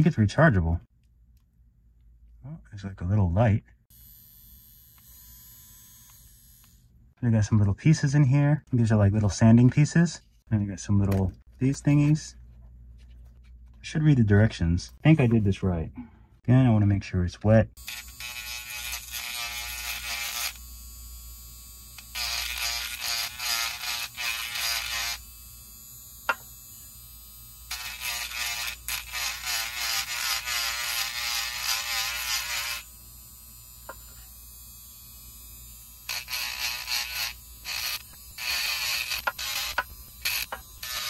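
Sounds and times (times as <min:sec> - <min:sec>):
rotary tool sanding whine: 0:21.9 - 0:26.9, 0:27.7 - 0:41.0.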